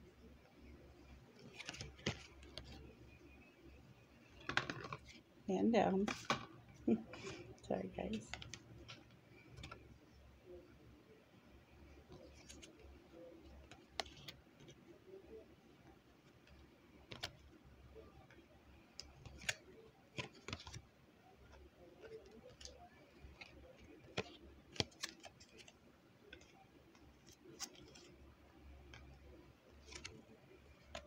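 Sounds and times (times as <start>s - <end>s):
faint low hum: 0.0s - 31.0s
cards clicking and tapping: 1.4s - 2.9s, 4.4s - 5.2s, 19.0s - 20.8s, 22.0s - 25.7s, 29.8s - 31.0s.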